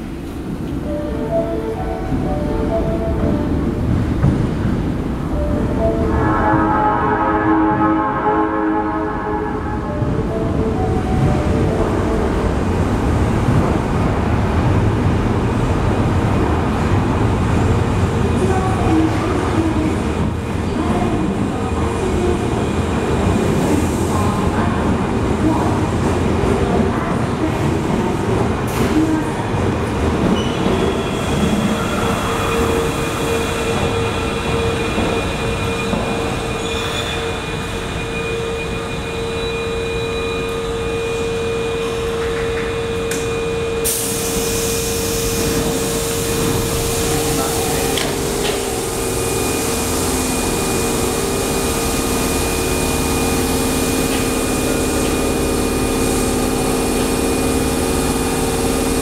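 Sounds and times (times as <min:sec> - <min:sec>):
standing train humming: 0:00.0 - 0:59.0
train braking to a stop: 0:28.7 - 0:59.0.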